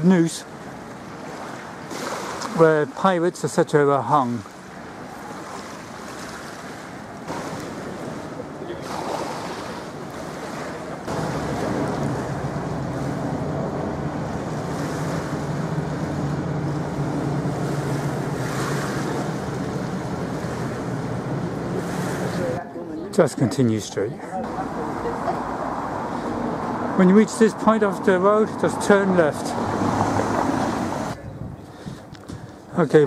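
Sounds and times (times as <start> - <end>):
wind buffeting microphone: 4.8 - 22.6, 29.5 - 32.7
steady low hum: 7.0 - 25.2.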